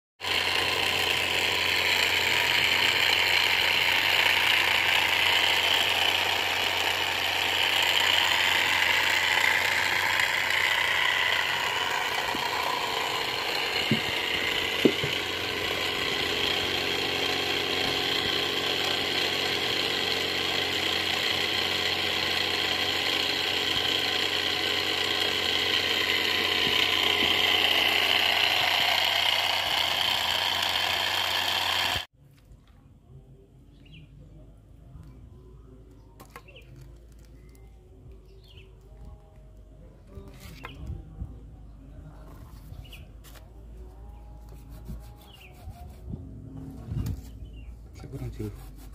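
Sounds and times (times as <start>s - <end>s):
machine motor humming: 0.2s - 32.1s.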